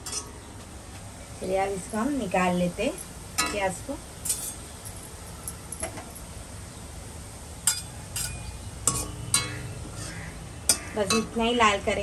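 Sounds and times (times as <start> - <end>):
metal spatula clinking on pan: 3.4 - 3.6, 4.2 - 4.9, 7.6 - 9.6.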